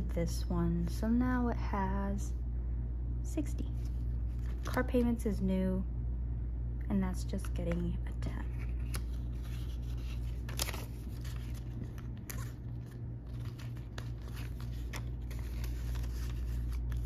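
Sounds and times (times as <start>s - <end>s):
plastic and paper crinkling: 3.7s - 5.1s, 7.4s - 17.0s.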